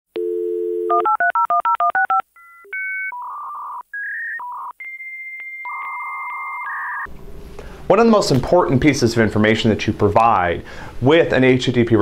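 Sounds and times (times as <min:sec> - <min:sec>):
dial tone: 0:00.2 - 0:07.1.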